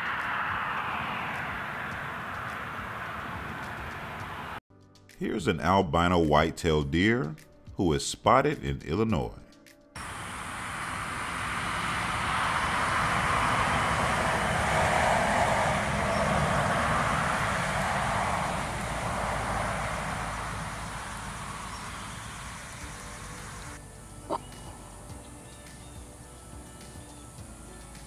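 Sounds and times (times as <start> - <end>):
outdoor rushing noise: 0.0 - 4.6, 10.0 - 23.8.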